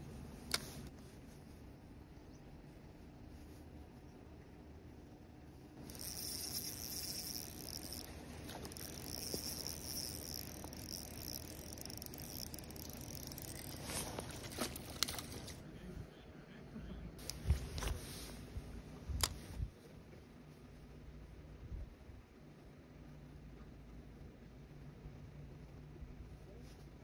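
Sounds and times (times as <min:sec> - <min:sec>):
reel clicks: 0:05.8 - 0:15.6
spinning reel whirring: 0:05.8 - 0:15.6.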